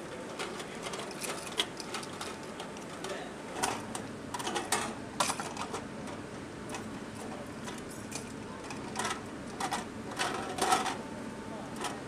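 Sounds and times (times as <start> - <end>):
steady background noise: 0.0 - 12.0.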